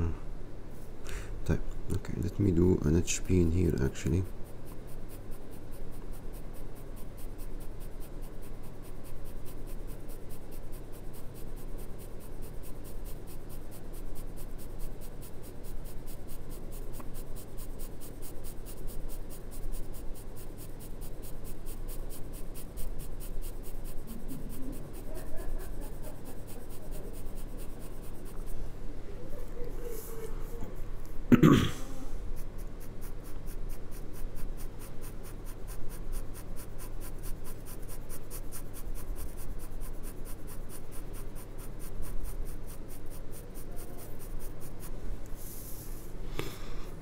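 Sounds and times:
low steady hum: 0:00.0 - 0:47.0
pencil scratching on paper: 0:02.1 - 0:28.7, 0:32.2 - 0:46.1.

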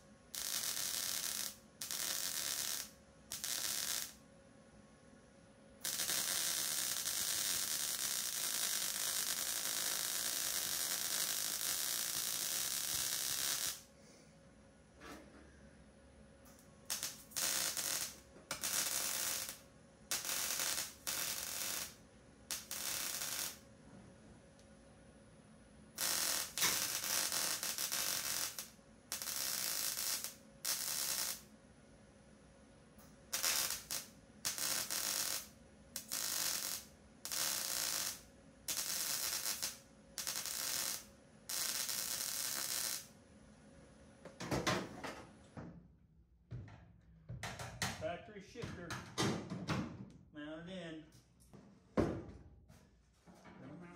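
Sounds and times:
welder crackling buzz: 0:00.0 - 0:04.2, 0:05.8 - 0:13.9, 0:16.6 - 0:23.6, 0:25.9 - 0:31.5, 0:33.3 - 0:43.2
knocks: 0:46.5 - 0:48.0.

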